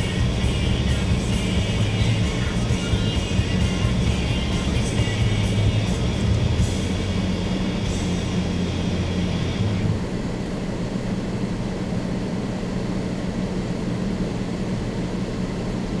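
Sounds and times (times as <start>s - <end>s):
music: 0.0s - 10.0s
car engine idling: 0.0s - 16.0s.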